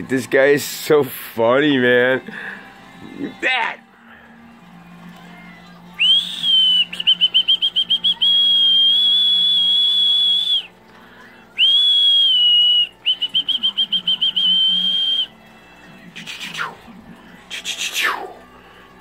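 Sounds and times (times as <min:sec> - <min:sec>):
shrill whistle blowing: 0:06.0 - 0:10.7, 0:11.6 - 0:15.4.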